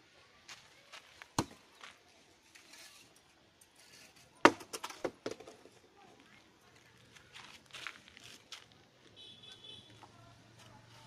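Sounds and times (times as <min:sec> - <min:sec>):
bricks knocking and clacking: 0:04.4 - 0:05.8.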